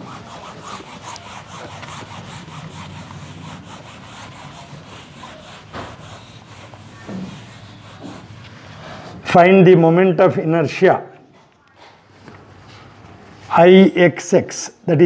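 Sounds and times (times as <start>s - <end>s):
eraser rubbing on whiteboard: 0.0s - 9.2s.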